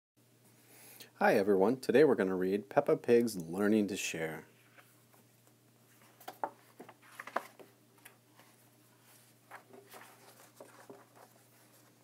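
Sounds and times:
book pages turning: 5.9 - 12.0
soft paper rustles: 5.9 - 12.0.

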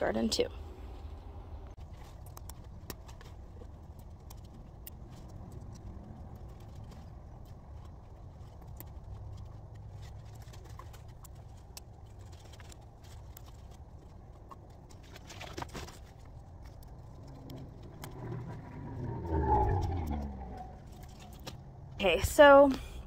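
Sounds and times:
low outdoor rumble: 0.0 - 23.0
leaves snapping and rustling: 1.8 - 18.9.

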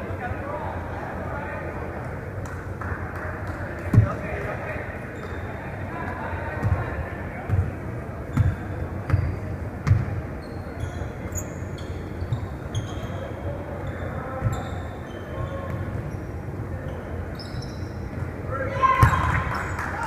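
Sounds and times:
sneakers squeaking on court: 5.2 - 5.5, 7.5 - 18.3.

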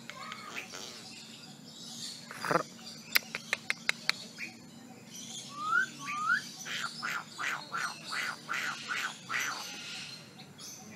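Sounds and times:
myna calling: 2.3 - 4.6, 5.5 - 10.2.

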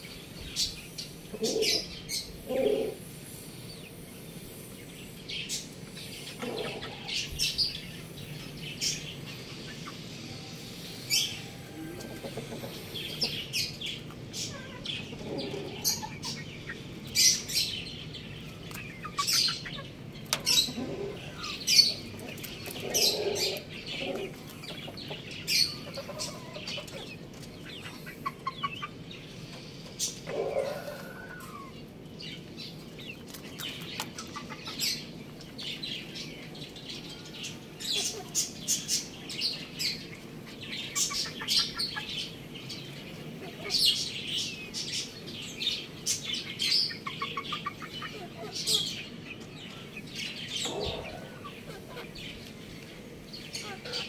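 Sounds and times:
chickens clucking: 0.0 - 54.0.

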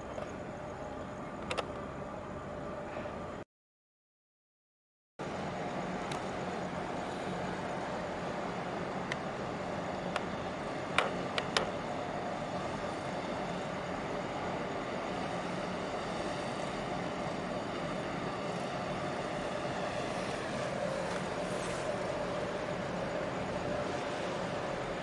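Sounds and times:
ship engines droning: 0.0 - 3.4, 5.2 - 25.0
harbour noise: 5.2 - 25.0.

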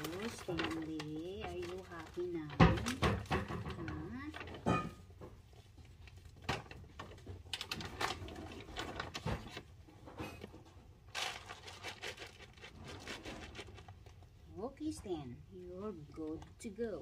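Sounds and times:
dry cat food rattling: 0.0 - 4.7, 5.8 - 14.4.

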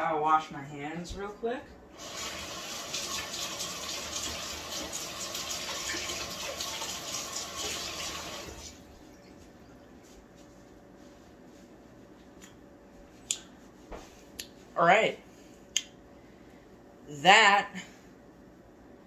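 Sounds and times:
tap water running: 1.9 - 8.9.

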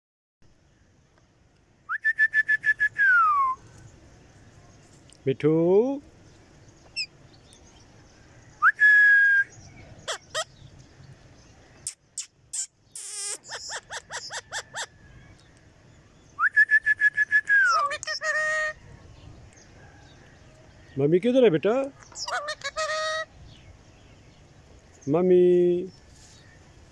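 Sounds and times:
parakeets whistling and calling: 10.0 - 10.6, 12.6 - 14.9, 17.5 - 18.8, 22.0 - 23.3
parakeet harsh screech: 12.5 - 14.9, 22.2 - 23.3.

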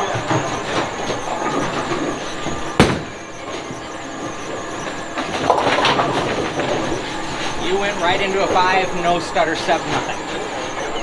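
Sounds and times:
bowling ball rolling: 0.0 - 7.5
bowling pins clattering: 5.2 - 6.8.

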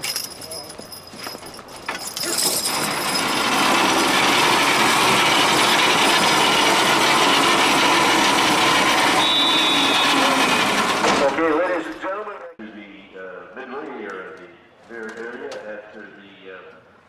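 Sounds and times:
mechanical grinding and ratcheting: 1.8 - 11.4.

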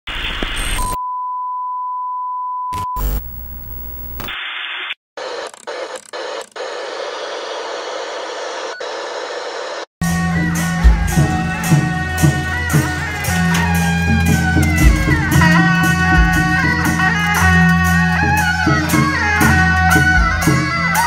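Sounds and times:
crackling glitch bursts: 0.1 - 1.0, 2.8 - 9.9
tv static hiss: 0.1 - 1.0, 2.8 - 9.9
music with drum beat: 10.0 - 21.0.

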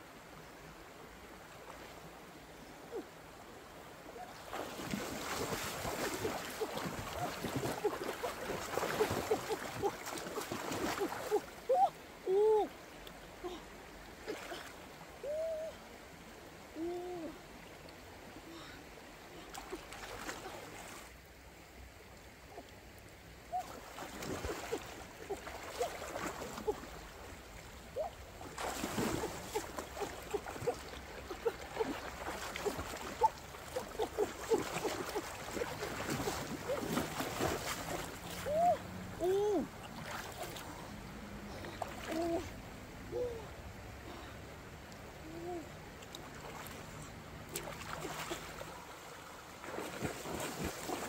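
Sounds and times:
river water splashing: 0.0 - 51.0
water gurgling: 4.1 - 12.7, 23.5 - 43.5.

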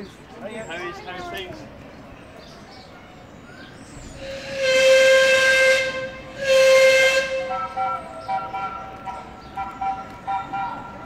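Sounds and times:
steam whistle blasts: 4.1 - 10.6.

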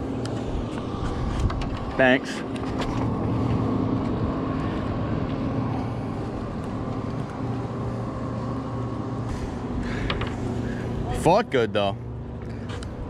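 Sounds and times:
engine humming: 0.0 - 13.0
wind noise on microphone: 0.4 - 2.0.

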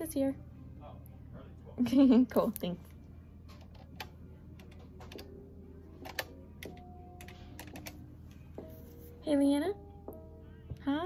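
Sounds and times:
faint low hum: 0.0 - 11.0
keys clicking: 6.0 - 8.0.

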